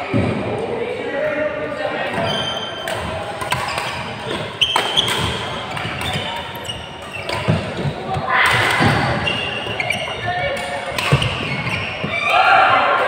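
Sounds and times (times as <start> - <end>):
shoe squeak: 2.2 - 2.9, 3.5 - 8.0, 8.8 - 12.3
racket striking shuttlecock: 2.8 - 11.8.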